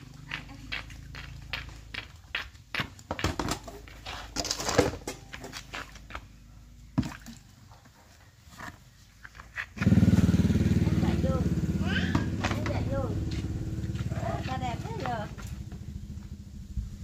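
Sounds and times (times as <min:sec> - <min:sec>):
footsteps on concrete: 0:00.0 - 0:04.4, 0:12.3 - 0:15.5
plastic buckets knocking: 0:00.2 - 0:06.3, 0:11.8 - 0:13.2
motorbike engine running: 0:09.8 - 0:17.0.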